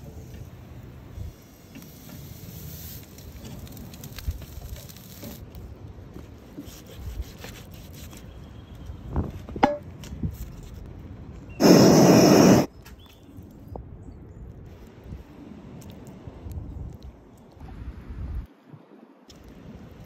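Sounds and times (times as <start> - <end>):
loud rushing hiss: 11.6 - 12.7.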